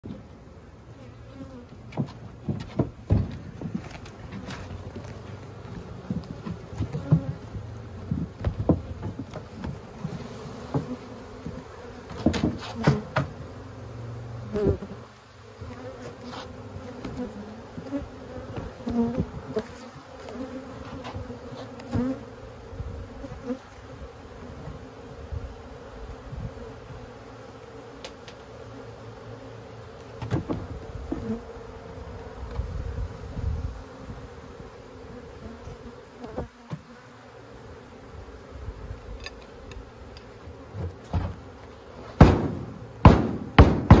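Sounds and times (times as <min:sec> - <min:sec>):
honeybees buzzing: 0:00.0 - 0:44.0
wooden frames knocking: 0:02.0 - 0:03.8
hive tool striking and prying wood: 0:12.1 - 0:13.4, 0:42.2 - 0:44.0.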